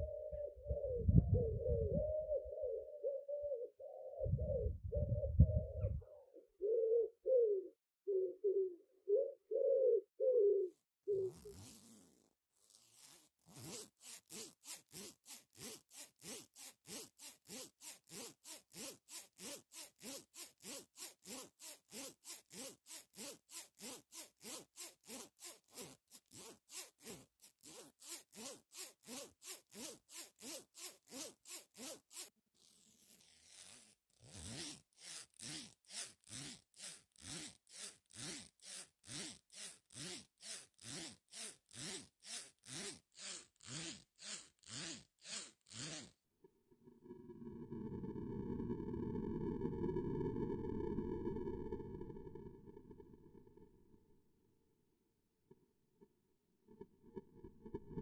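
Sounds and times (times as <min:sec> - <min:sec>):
pigeon cooing: 0:00.0 - 0:11.8.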